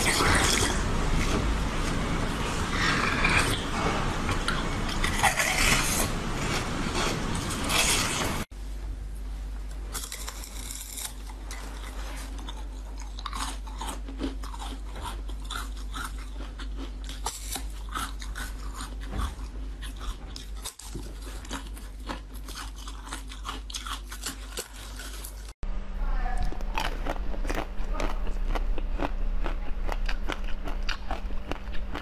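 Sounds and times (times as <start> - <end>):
steady low hum: 0.0 - 32.0
ice crunching between teeth: 9.9 - 25.5, 26.6 - 32.0.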